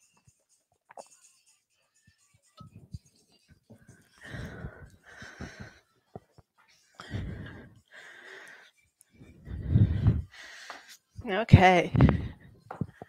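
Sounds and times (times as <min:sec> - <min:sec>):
woman breathing hard: 0:03.8 - 0:06.0, 0:07.0 - 0:11.1, 0:11.9 - 0:13.0.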